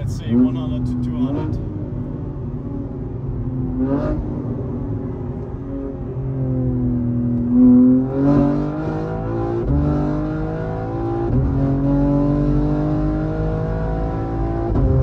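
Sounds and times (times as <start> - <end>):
engine at full throttle: 5.7 - 15.0.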